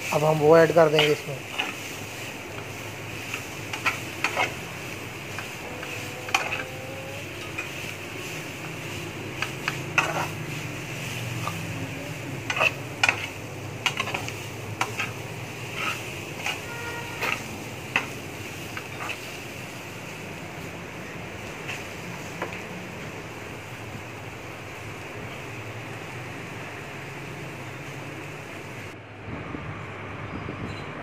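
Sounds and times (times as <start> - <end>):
steady low hum and hiss: 0.0 - 29.0
metal spatula scraping frying pan: 0.6 - 19.6.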